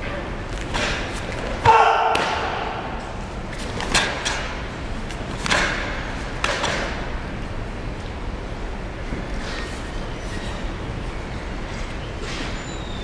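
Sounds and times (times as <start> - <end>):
sharp cracks echoing in hall: 0.0 - 7.3.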